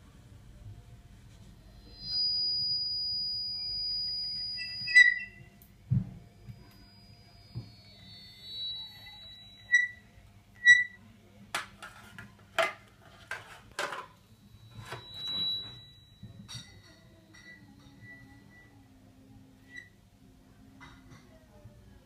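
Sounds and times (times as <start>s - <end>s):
high whistle-like tones: 1.5s - 11.2s, 14.2s - 20.1s.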